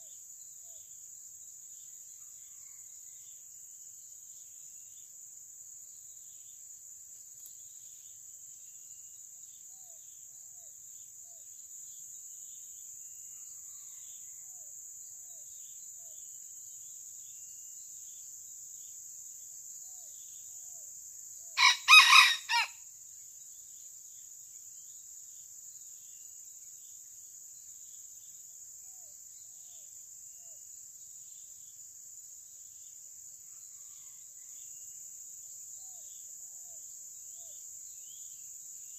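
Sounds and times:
high insect drone: 0:00.0 - 0:38.9
rooster crowing: 0:21.6 - 0:22.8.

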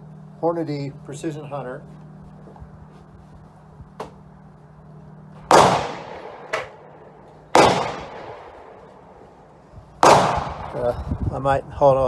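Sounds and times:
loud echoing gunshots: 0:05.5 - 0:10.9.

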